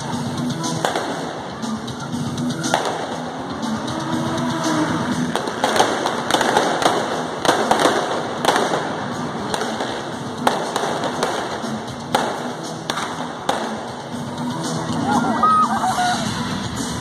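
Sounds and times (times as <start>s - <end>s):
sharp pops and bangs: 0.8s - 1.4s, 2.7s - 3.3s, 5.3s - 14.0s.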